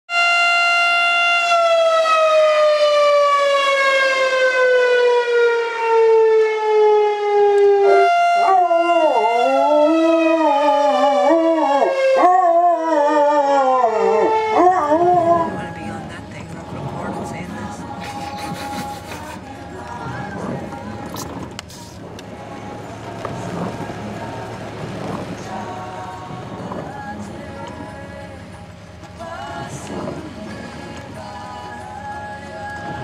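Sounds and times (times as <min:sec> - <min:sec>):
wavering electronic line: 0:07.3 - 0:12.3.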